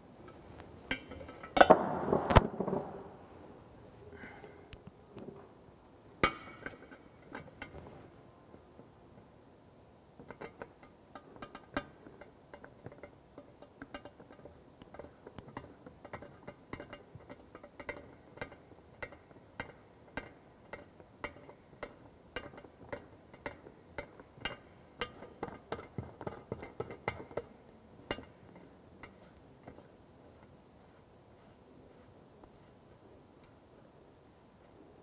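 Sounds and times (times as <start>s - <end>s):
metal clicking against ceramic basin: 10.2s - 29.9s.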